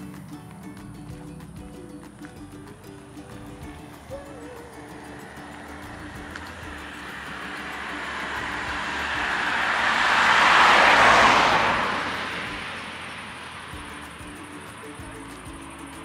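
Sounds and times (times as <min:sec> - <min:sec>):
car driving past: 0:04.7 - 0:16.0.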